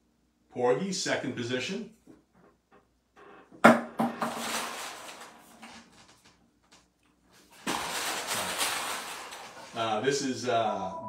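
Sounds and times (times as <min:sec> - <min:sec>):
rustling: 0:04.3 - 0:10.0.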